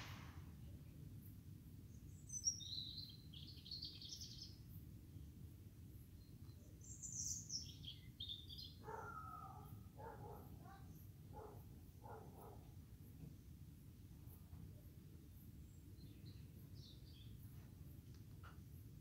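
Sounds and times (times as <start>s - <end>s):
faint bird chirps: 1.8s - 12.7s.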